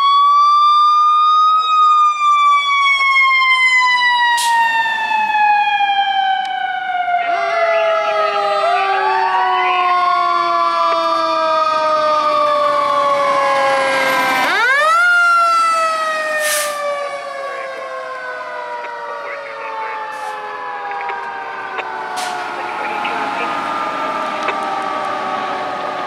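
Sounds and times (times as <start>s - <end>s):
fire engine siren wailing: 0.0s - 26.0s.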